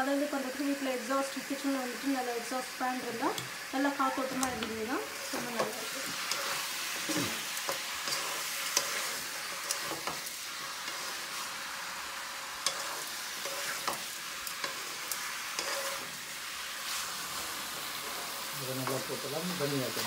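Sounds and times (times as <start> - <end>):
chicken sizzling in oil: 0.0 - 20.0
spatula clicking and scraping pan: 4.2 - 11.6, 12.4 - 16.2.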